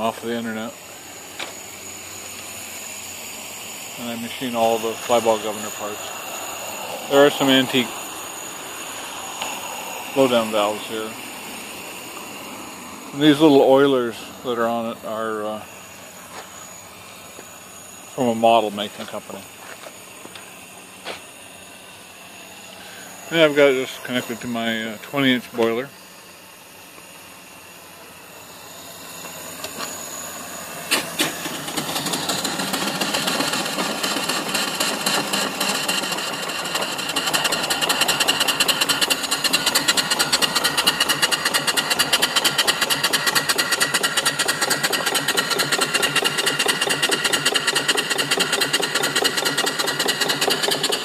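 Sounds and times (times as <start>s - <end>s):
soft steam hiss: 0.0s - 31.5s
steam engine exhaust beating: 0.0s - 51.0s.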